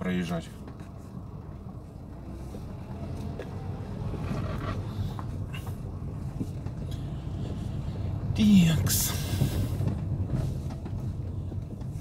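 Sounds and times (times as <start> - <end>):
car engine rumbling: 0.0 - 12.0
light knocks and rattles: 4.8 - 8.3, 9.2 - 12.0.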